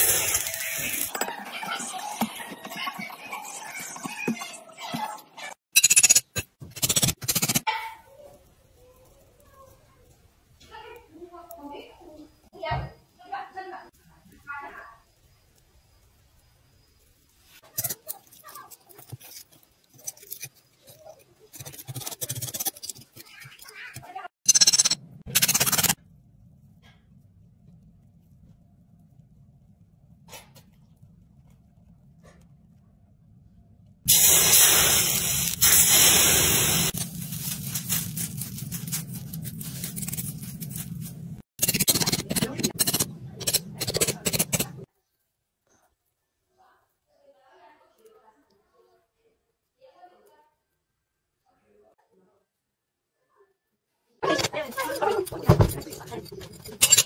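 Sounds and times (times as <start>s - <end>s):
molten metal hissing in sand mould: 34.1s - 40.2s.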